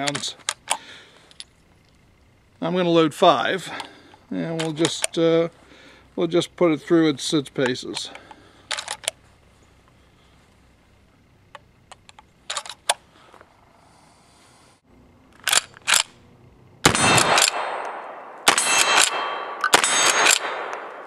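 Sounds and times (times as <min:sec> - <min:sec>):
rifle shots with echo: 0:16.8 - 0:21.0.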